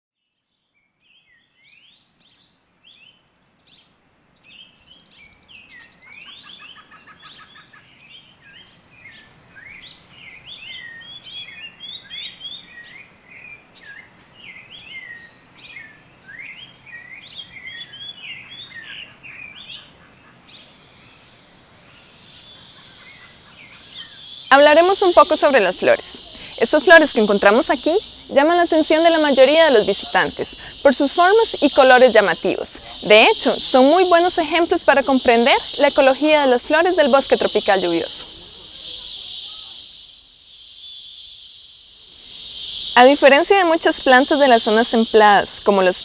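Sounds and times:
high insect hiss: 1.0s - 46.0s
birds chirping and whistling: 4.5s - 21.3s, 22.2s - 41.4s.

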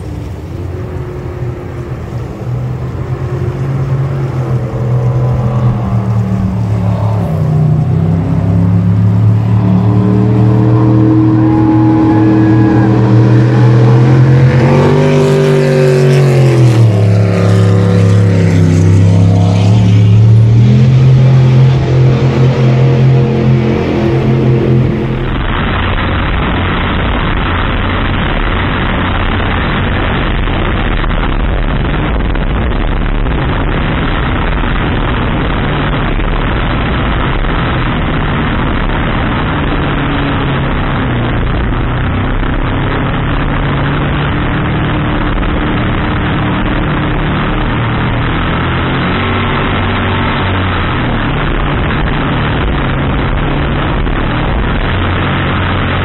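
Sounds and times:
boat engine running hard: 0.0s - 56.0s.

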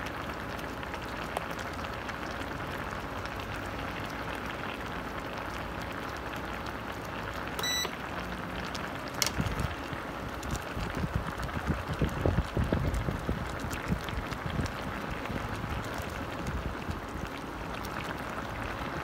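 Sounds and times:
sauce bubbling in a pot: 0.0s - 19.0s
short electronic beep: 7.6s - 7.9s.

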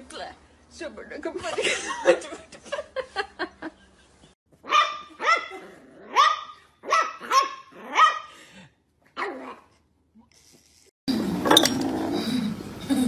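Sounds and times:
puppy barking: 4.6s - 8.3s.

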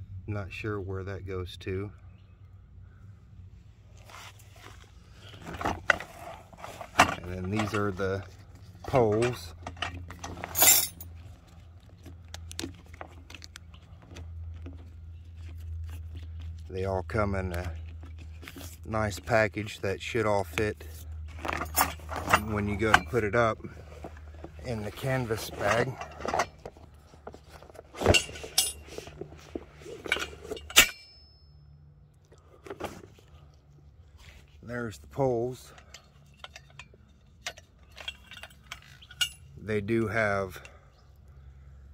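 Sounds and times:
metal tent poles clanking: 4.0s - 16.2s, 16.9s - 31.6s, 34.2s - 40.8s.

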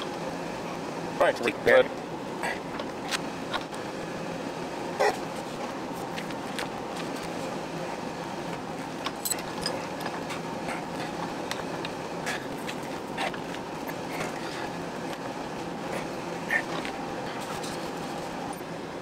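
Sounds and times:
steady background hum: 0.0s - 19.0s.

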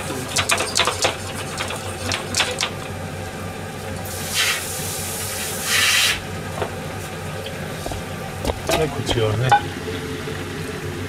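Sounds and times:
food hissing in a hot pan: 4.0s - 6.2s.

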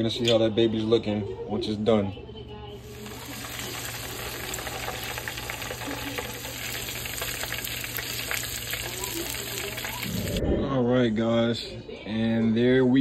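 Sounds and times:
chicken deep-frying in oil: 2.8s - 10.4s.

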